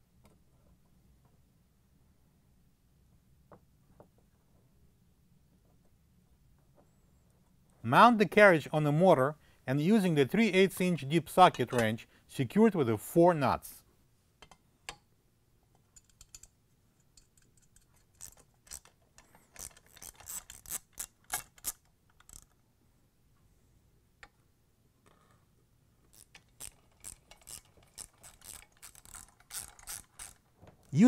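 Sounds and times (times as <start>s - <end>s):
ratchet wrench clicking: 17.2s - 22.5s, 26.1s - 30.4s.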